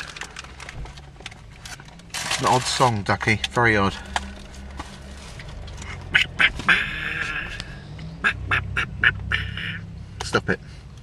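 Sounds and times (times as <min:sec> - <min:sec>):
person doing duck quacks: 0:05.8 - 0:07.6, 0:08.2 - 0:09.9.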